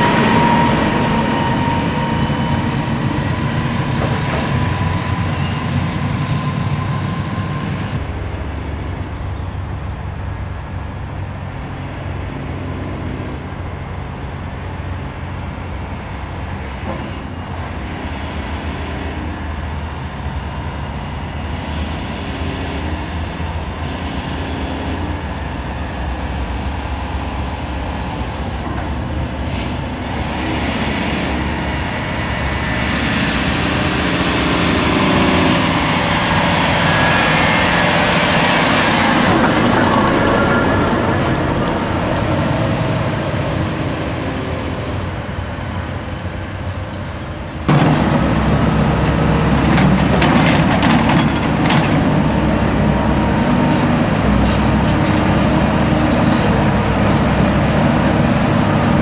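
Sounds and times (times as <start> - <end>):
distant dump truck approaching: 0.0 - 59.0
dump truck diesel engine with whine: 0.0 - 59.0.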